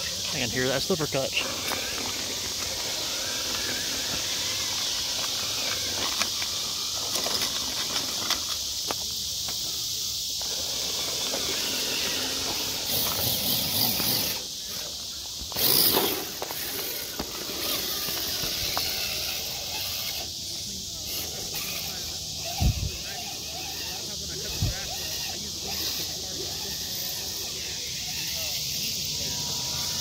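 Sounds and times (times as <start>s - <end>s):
night insects chorus: 0.0s - 30.0s.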